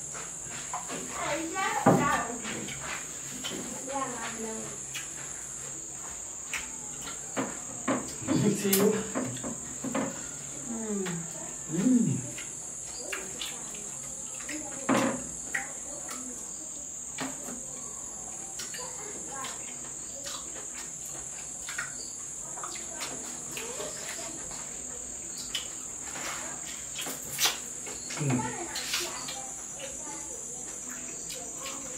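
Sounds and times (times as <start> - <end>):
crickets chirring: 0.0 - 31.9
mouth clicks and smacks eating: 4.8 - 5.3, 11.1 - 14.8, 18.3 - 26.0
person humming: 10.7 - 12.3.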